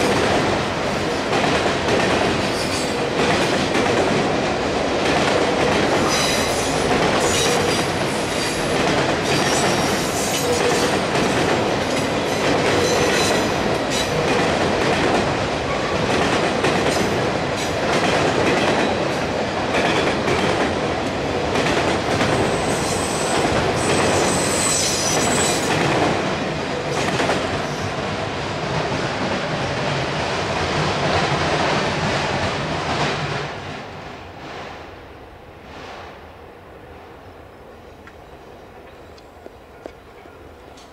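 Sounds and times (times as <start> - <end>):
train wheels rumbling on rails: 0.0 - 36.2
high wheel squeal: 22.6 - 25.7.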